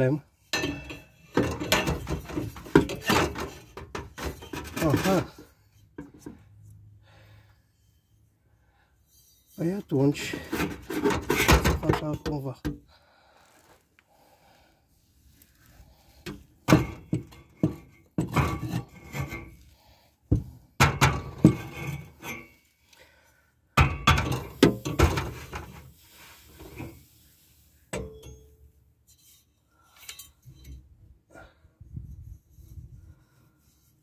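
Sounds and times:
metal pipe clanking and scraping: 0.0 - 6.5, 7.7 - 8.3, 9.0 - 12.8, 15.6 - 22.8, 23.8 - 31.0.

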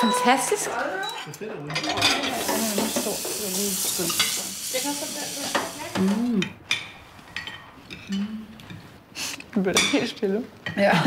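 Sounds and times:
food sizzling: 1.9 - 6.4.

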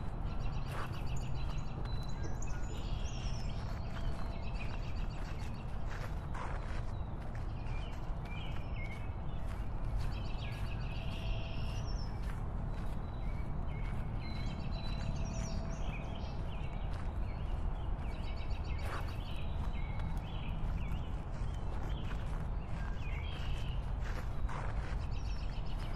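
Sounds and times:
birds chirping: 0.0 - 25.9.

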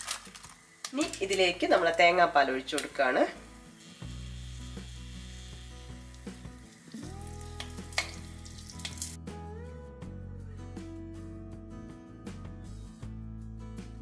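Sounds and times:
liquid sizzling in hot pan: 0.0 - 9.2
background music low notes: 0.0 - 14.0.

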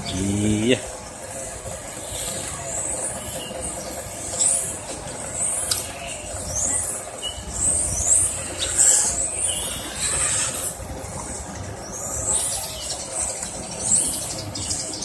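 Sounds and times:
electric model car motors whining: 1.2 - 12.9.

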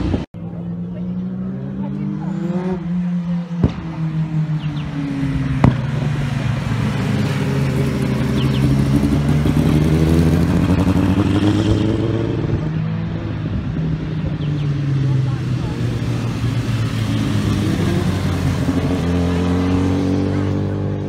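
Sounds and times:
racing motorcycles passing: 0.0 - 21.0.

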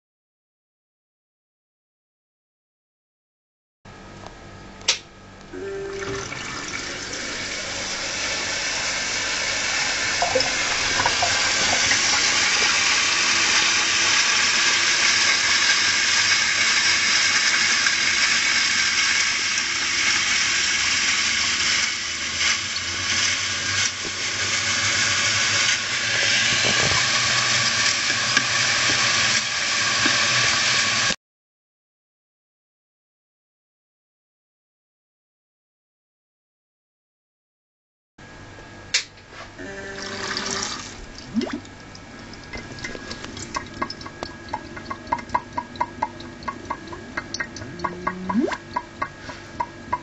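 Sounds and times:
spinning platter churning water: 6.0 - 31.1, 39.9 - 50.0.

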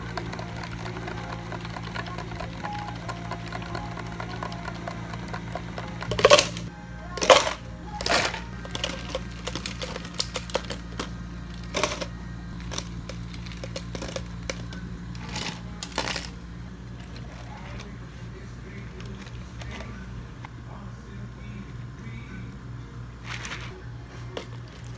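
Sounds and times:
ice cubes rattling into plastic cups: 0.0 - 16.4, 23.2 - 23.7, 24.4 - 24.9
steady low hum: 0.0 - 24.9.

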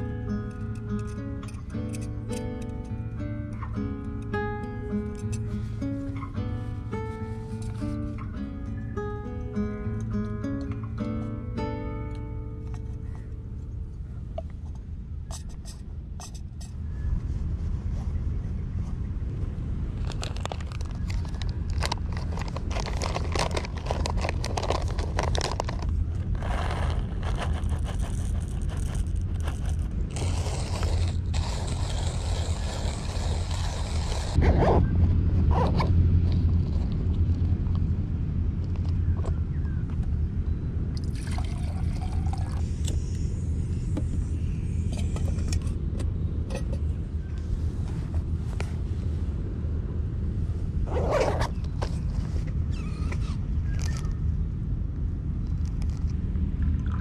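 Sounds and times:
steady low rumble: 0.0 - 57.0
bag rustling: 20.0 - 34.4
hand coffee grinder handled: 20.1 - 34.4.

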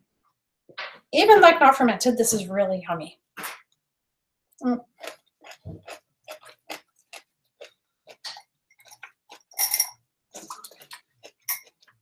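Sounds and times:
wet cabbage crunching: 4.6 - 9.7, 10.3 - 12.0.

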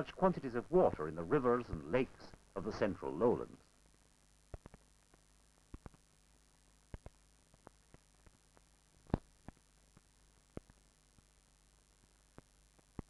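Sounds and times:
film soundtrack hum and hiss: 0.0 - 13.0
film clicks and pops: 4.5 - 6.0, 6.9 - 10.8.

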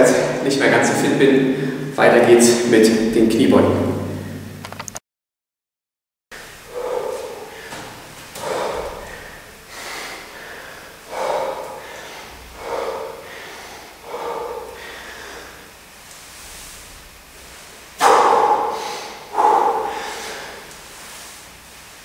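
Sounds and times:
man breathing hard: 1.5 - 2.0, 6.4 - 21.5.

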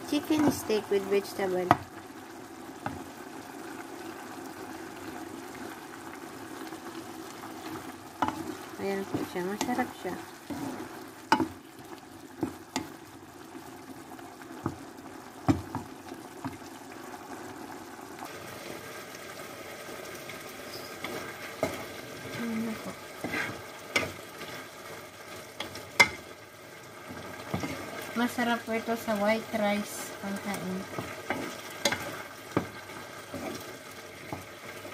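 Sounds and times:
food sizzling in a pan: 0.0 - 34.9
wooden spatula knocking pan: 8.2 - 10.0, 11.3 - 11.6, 15.4 - 15.9, 30.9 - 32.8.

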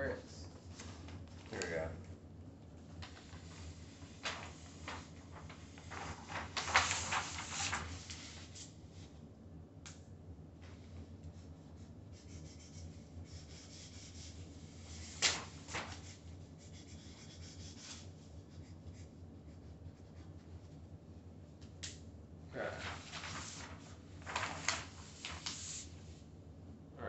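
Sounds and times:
paper rustling: 2.9 - 8.8, 14.8 - 16.2, 22.6 - 26.2.

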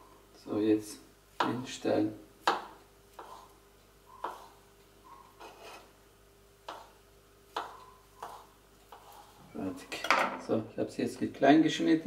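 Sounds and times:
knife cutting on a cutting board: 2.5 - 3.5, 4.2 - 4.6, 5.4 - 5.9, 6.7 - 9.4.

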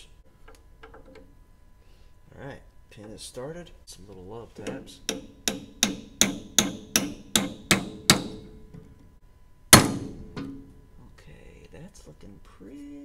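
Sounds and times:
hammer tapping steel pin: 4.6 - 8.8.

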